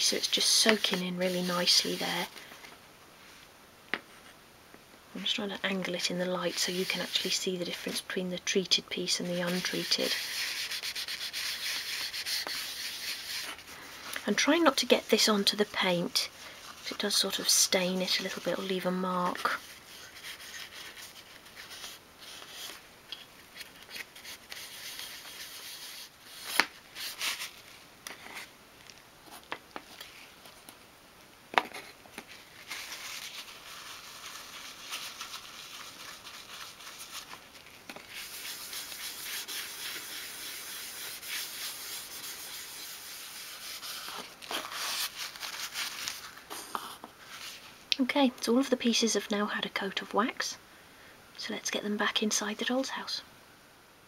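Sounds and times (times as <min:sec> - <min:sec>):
towel rubbing on wood: 0:09.3 - 0:13.6, 0:38.0 - 0:45.7.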